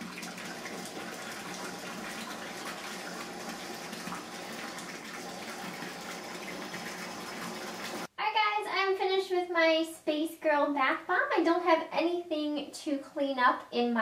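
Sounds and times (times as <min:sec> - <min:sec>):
tap pouring into bathtub: 0:00.0 - 0:08.1.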